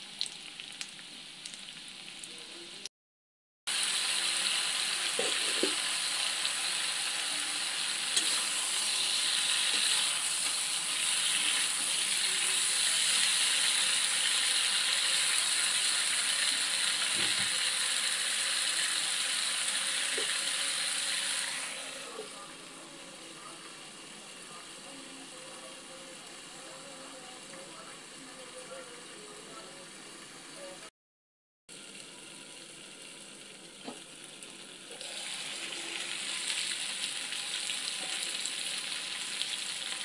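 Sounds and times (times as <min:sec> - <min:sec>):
vegetables sizzling in oil: 0:03.7 - 0:30.6, 0:31.7 - 0:40.0.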